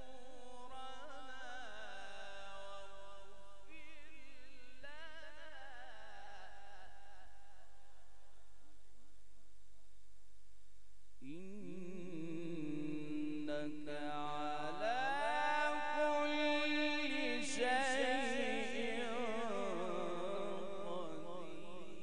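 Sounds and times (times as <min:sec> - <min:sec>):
man reciting melodically through microphone: 0:00.0 - 0:07.9, 0:11.2 - 0:22.0.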